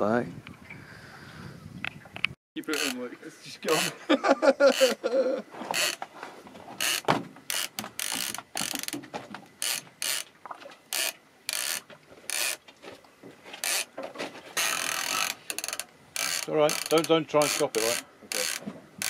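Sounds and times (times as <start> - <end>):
fishing reel drag giving out line: 14.6 - 18.6.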